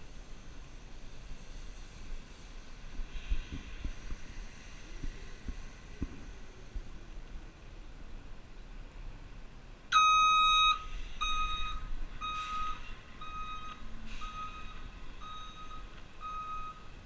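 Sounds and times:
low engine rumble: 0:00.0 - 0:17.0
truck backup alarm beeping: 0:09.9 - 0:17.0.

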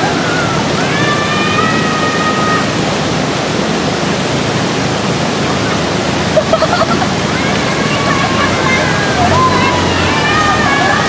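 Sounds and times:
water rushing over rocks: 0:00.0 - 0:11.0.

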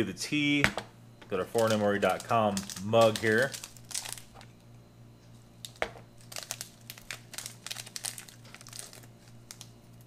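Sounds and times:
tea packet crinkling and tearing: 0:01.5 - 0:04.5, 0:05.6 - 0:10.0.

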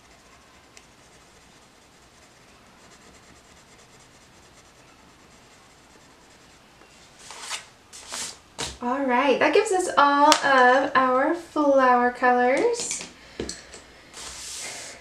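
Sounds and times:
pencil scratching on paper: 0:00.0 - 0:08.2
hand brushing paper: 0:00.0 - 0:08.4, 0:14.2 - 0:15.0.

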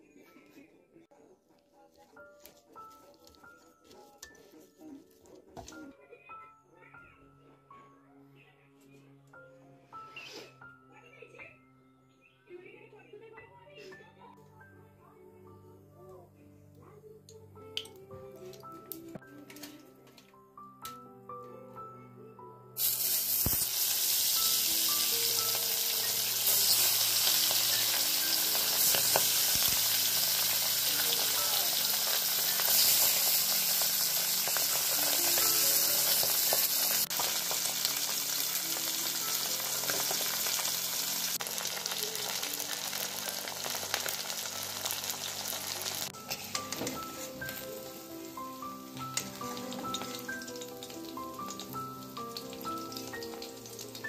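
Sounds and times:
fish sizzling in hot oil: 0:22.8 - 0:48.4, 0:49.0 - 0:54.0.

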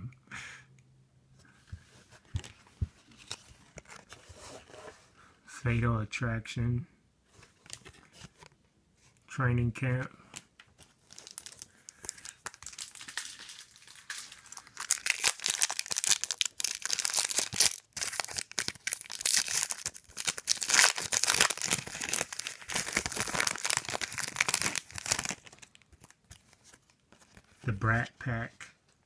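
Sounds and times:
plastic wrapper tearing and crinkling: 0:10.8 - 0:27.5.

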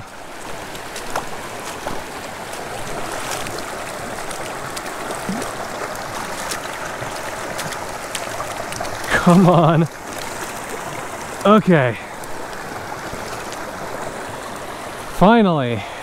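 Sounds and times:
boots splashing through water: 0:00.0 - 0:11.5
creek running over rocks: 0:00.0 - 0:16.0.

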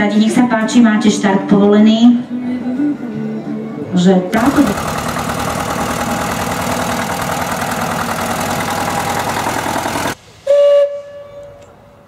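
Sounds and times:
tractor engine driving past: 0:04.3 - 0:10.2.

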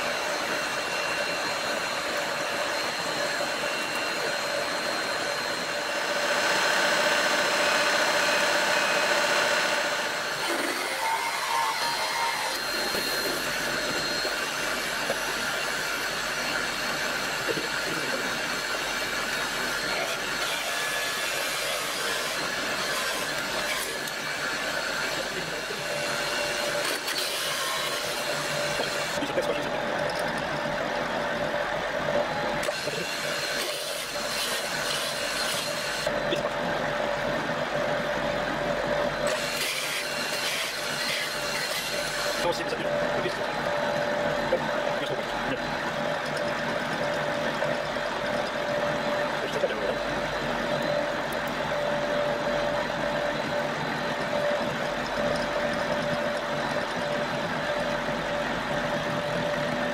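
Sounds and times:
hole saw cutting wood: 0:00.0 - 0:29.7, 0:32.6 - 0:36.5, 0:39.2 - 0:45.6
machine running hum: 0:00.0 - 0:59.9.

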